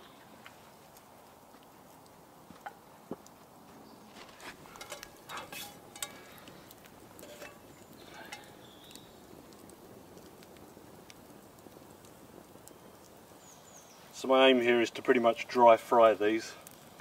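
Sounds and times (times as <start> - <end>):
campfire crackling and popping: 0.0 - 17.0
frying pan clattering on metal grill: 4.6 - 6.5, 7.2 - 8.6.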